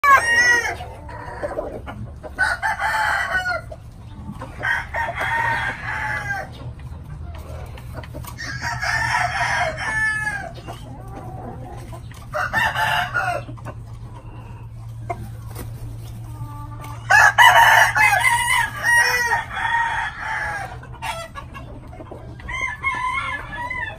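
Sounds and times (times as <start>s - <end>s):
roosters crowing: 0.0s - 23.9s.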